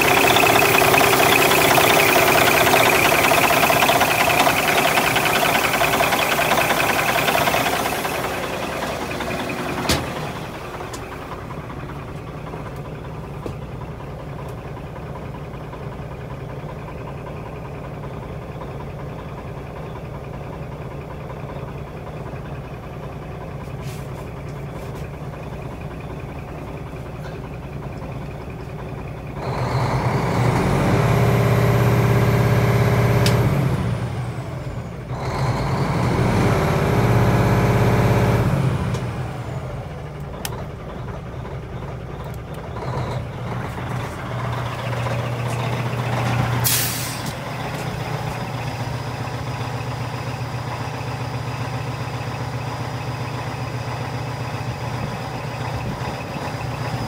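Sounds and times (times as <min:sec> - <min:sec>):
turbo whine: 0:00.0 - 0:11.2
diesel engine idling and revving: 0:00.0 - 0:57.0.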